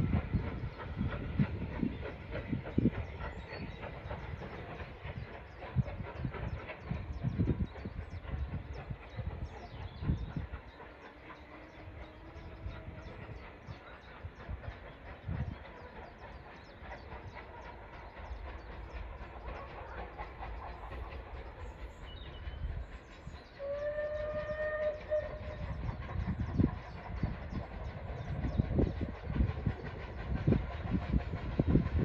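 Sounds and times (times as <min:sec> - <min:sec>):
steam train rumbling: 0:00.0 - 0:32.0
steam whistle: 0:23.6 - 0:25.7.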